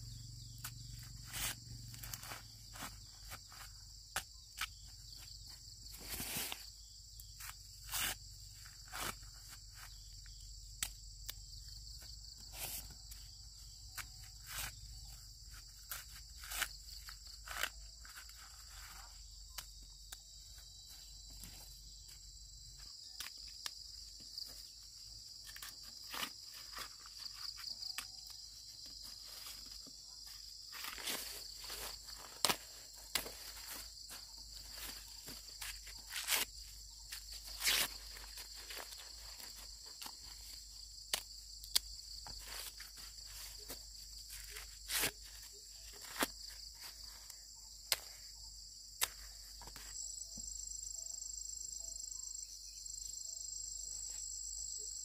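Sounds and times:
high-pitched insect chorus: 0.0s - 55.0s
sharp snaps and rustles: 25.4s - 48.3s.

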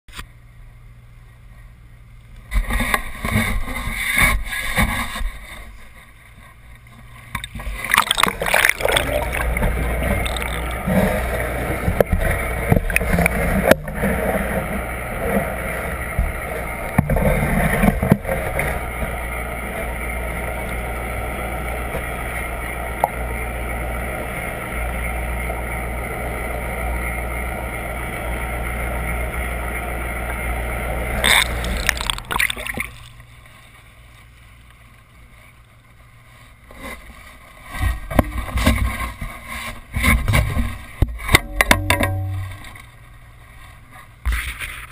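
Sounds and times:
underwater rumble: 2.6s - 44.2s
water splashing: 7.2s - 18.6s, 31.2s - 34.0s.

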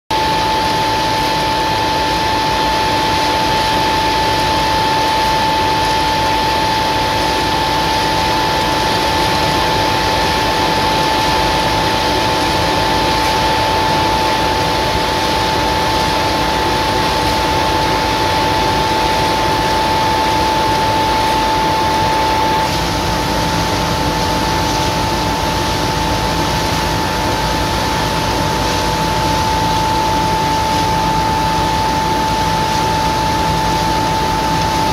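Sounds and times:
fan rushing air with whine: 0.1s - 34.9s.

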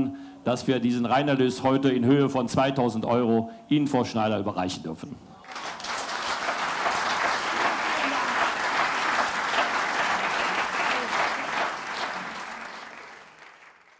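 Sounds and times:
crowd applauding: 5.4s - 13.9s.

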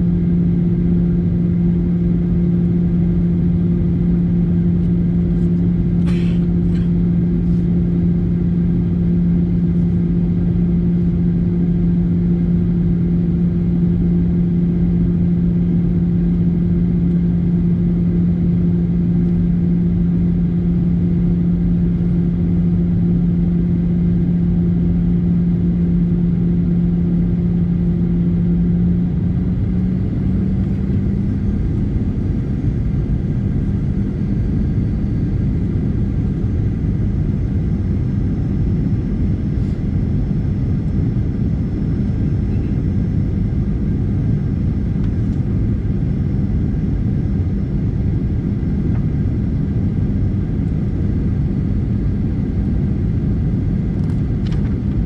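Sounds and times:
low engine hum: 0.0s - 55.0s
roar of engines and airflow: 0.0s - 55.0s.

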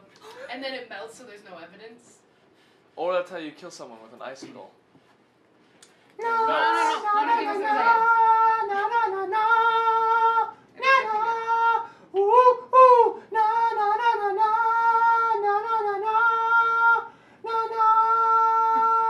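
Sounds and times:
woman singing long held notes: 6.2s - 12.5s.

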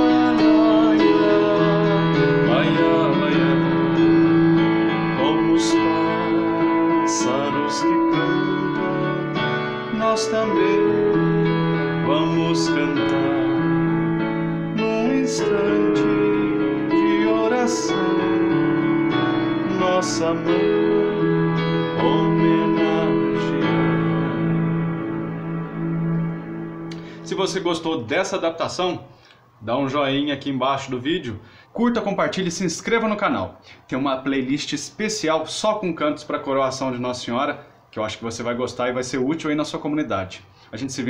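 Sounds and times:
electronic keyboard playing a hymn: 0.0s - 28.6s.

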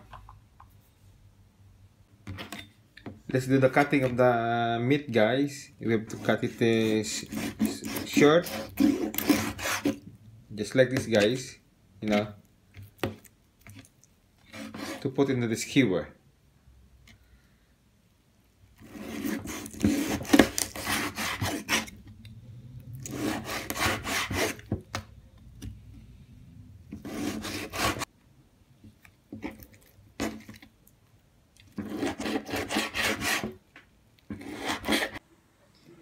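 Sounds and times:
knife slicing pork on cutting board: 18.9s - 21.9s.

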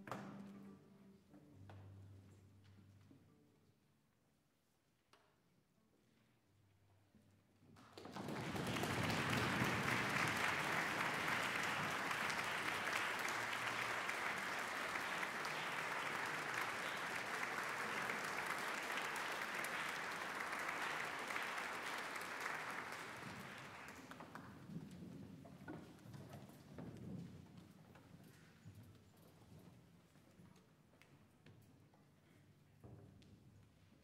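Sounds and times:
audience applause: 7.9s - 24.5s.

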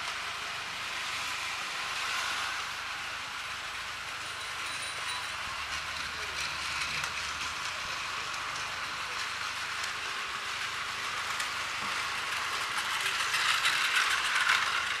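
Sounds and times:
toy train whirring and clattering: 0.0s - 15.0s.

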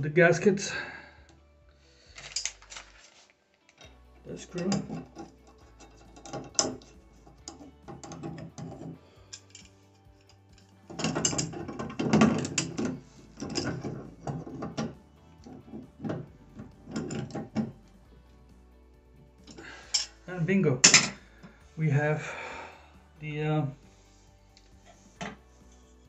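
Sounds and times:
wrench clicking and scraping metal: 2.1s - 2.9s, 3.7s - 17.8s, 19.4s - 20.2s.

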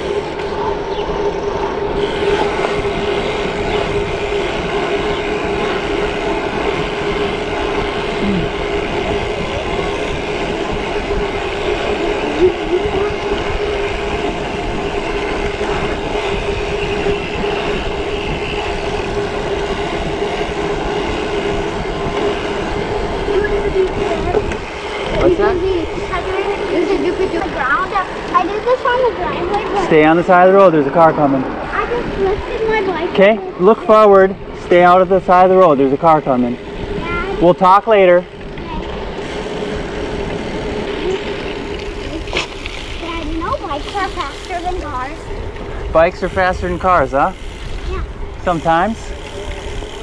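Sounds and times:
wind on microphone: 0.0s - 30.1s, 31.4s - 33.6s
bike tyres humming on asphalt: 0.0s - 50.0s.

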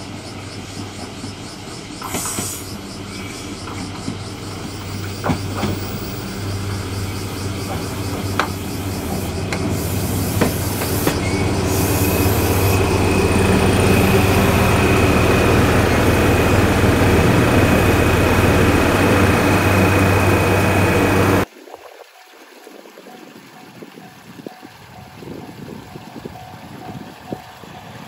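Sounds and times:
railcar engine humming: 0.0s - 21.5s, 23.5s - 28.0s
outdoor background: 0.0s - 28.0s
high steady squeal: 5.8s - 21.5s
wheels clicking over rail joints: 7.4s - 21.5s.

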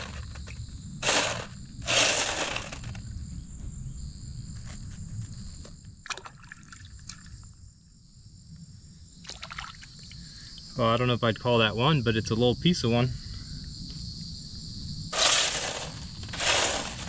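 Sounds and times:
water sloshing in sifter: 0.0s - 3.0s, 9.3s - 10.0s, 15.2s - 17.0s
clicks of wet gravel: 0.0s - 3.1s, 15.2s - 17.0s.

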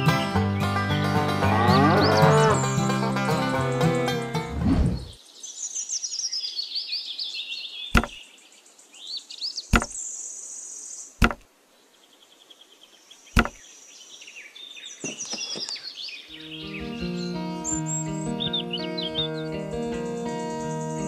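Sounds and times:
sharp knocks of clay pieces: 8.0s - 8.2s, 9.7s - 10.0s, 11.2s - 11.4s, 13.4s - 13.6s
birds chirping: 11.2s - 21.0s.

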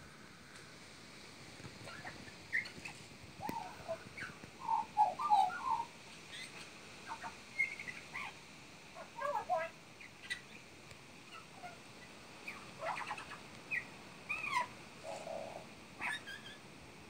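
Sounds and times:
magpie warbling and chirping: 12.5s - 16.6s.

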